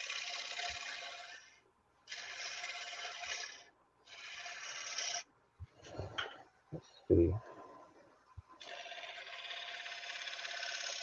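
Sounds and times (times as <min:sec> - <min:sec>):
lathe tool cutting wood: 0:08.6 - 0:11.0.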